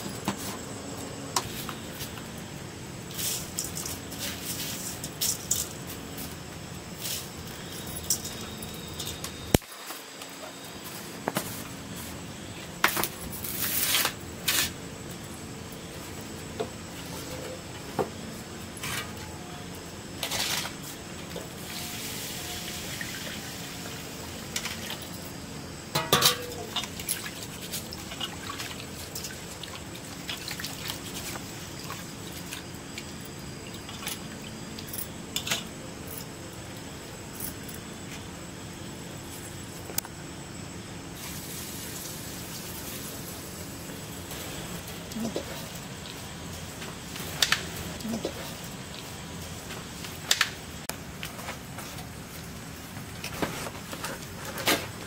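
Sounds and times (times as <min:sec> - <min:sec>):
steel bowls clinking: 0:25.9 - 0:27.2.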